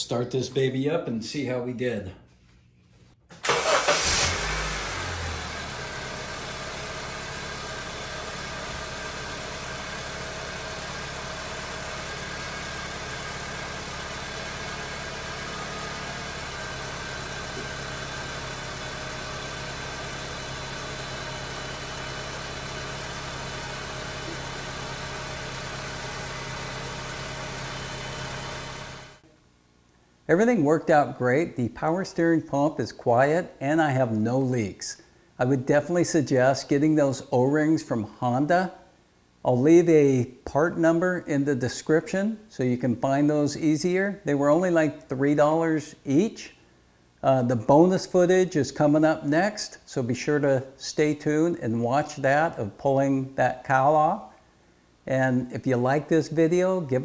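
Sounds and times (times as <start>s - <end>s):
car engine starting and idling: 3.3s - 29.2s.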